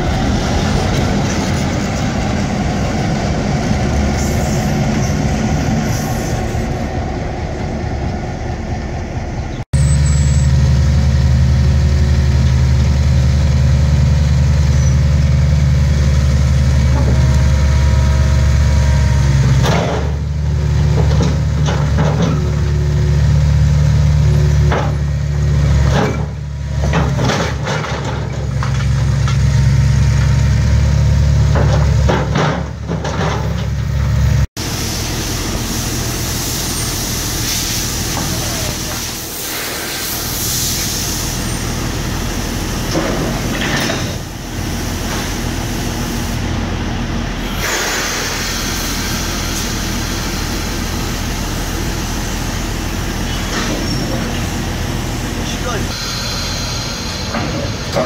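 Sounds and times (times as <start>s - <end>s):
diesel engine running: 0.0s - 58.0s
metal clanks and scrapes: 31.5s - 33.9s, 42.9s - 44.3s.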